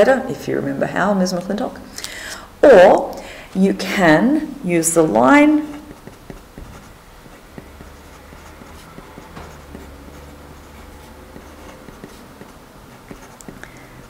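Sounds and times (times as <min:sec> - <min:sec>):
pen scratching on paper: 0:05.0 - 0:14.0.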